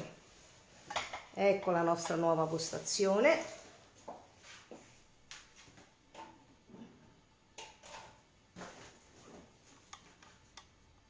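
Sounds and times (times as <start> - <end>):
kitchen items knocking and clicking: 0.8 - 2.4, 7.5 - 8.8.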